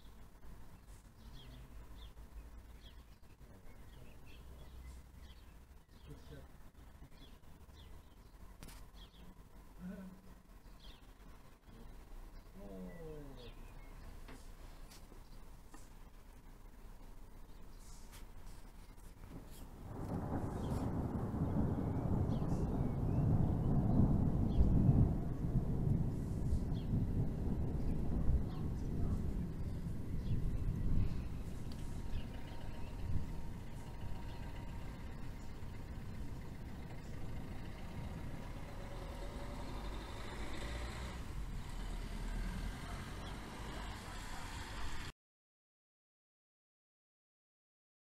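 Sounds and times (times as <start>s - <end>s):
broad noise: 0.0s - 41.7s
distant thunder rumbling: 19.7s - 43.8s.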